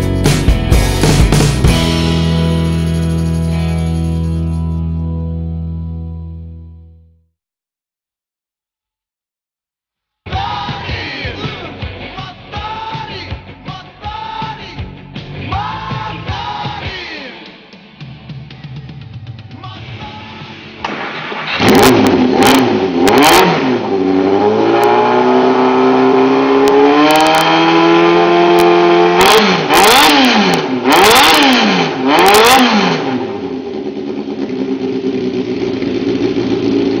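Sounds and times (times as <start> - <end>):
motorcycle engine revving and idling: 21.6 - 37.0.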